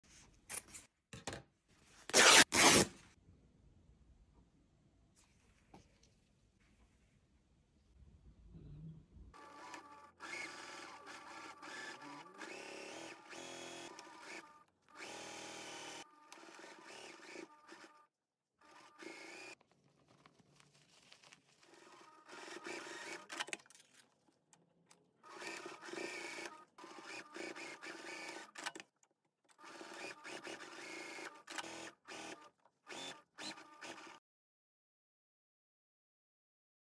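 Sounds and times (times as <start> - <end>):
electric sewing machine stitching: 9.4 - 19.6, 21.7 - 23.6, 25.2 - 28.8, 29.5 - 34.2.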